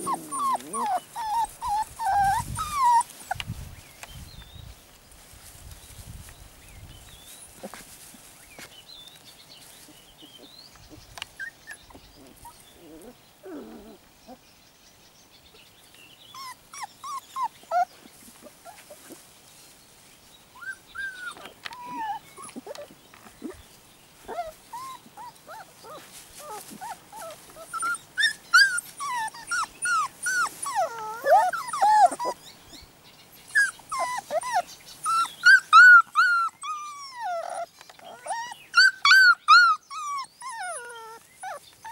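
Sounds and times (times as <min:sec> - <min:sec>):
puppy whining and whimpering: 0:00.0 - 0:03.4, 0:11.4 - 0:14.4, 0:16.3 - 0:18.0, 0:20.6 - 0:23.6, 0:24.3 - 0:32.8, 0:33.5 - 0:41.9.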